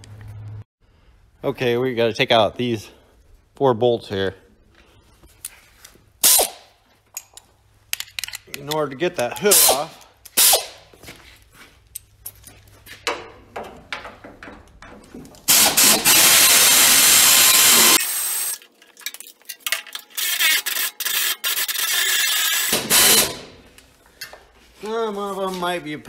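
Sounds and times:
metal clicks and scrapes: 7.2s - 9.5s, 18.6s - 23.3s
loud steady tool noise: 15.5s - 18.6s, 22.0s - 23.4s.

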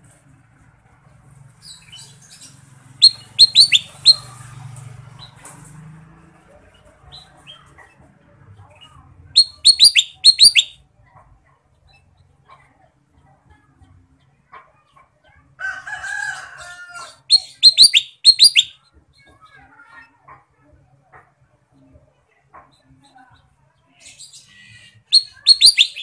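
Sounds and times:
bulbul chirping: 3.0s - 4.3s, 9.4s - 10.8s, 17.3s - 18.8s, 25.1s - 26.0s.

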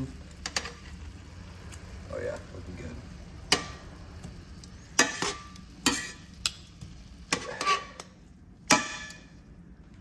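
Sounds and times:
fish sizzling: 0.0s - 9.3s
tongs clicking on frying pan: 3.5s - 9.3s.

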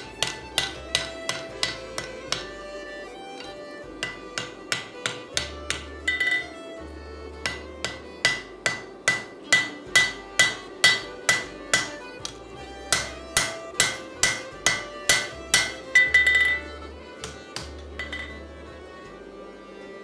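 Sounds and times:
hammer striking steel on anvil: 0.0s - 2.6s, 3.4s - 6.6s, 7.3s - 18.5s.

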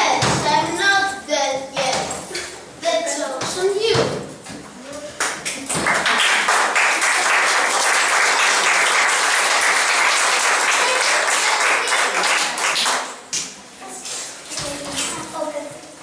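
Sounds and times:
applause: 5.2s - 13.2s.

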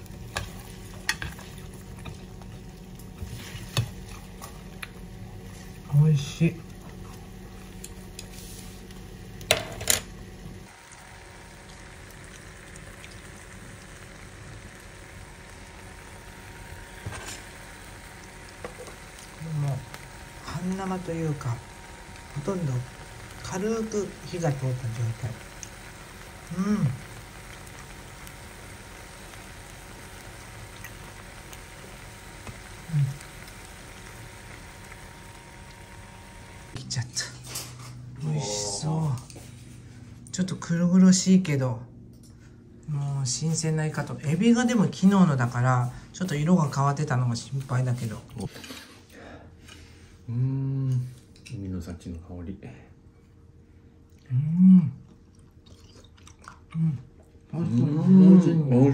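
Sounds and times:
food sizzling in a pan: 0.0s - 36.8s
low hum: 8.9s - 40.3s
low voice: 38.2s - 39.2s.

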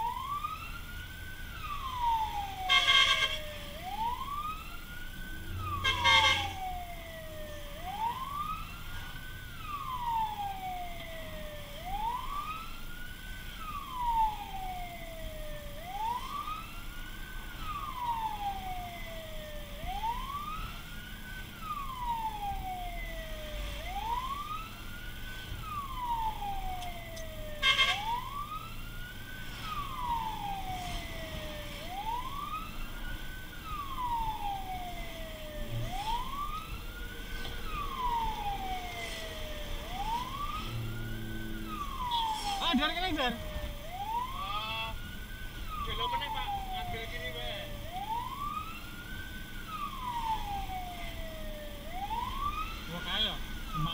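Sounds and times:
fire truck siren wailing: 0.0s - 53.9s
short loud siren blasts: 1.8s - 4.6s, 5.4s - 7.2s, 25.8s - 28.5s, 35.4s - 45.0s.

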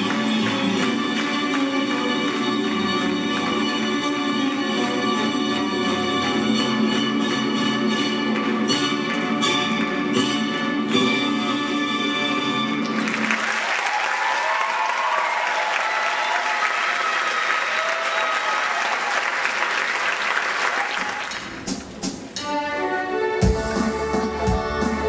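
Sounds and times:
crowd applauding: 0.0s - 4.9s, 12.8s - 21.7s
music: 0.0s - 13.6s, 21.2s - 25.0s
live band playing: 21.3s - 25.0s.

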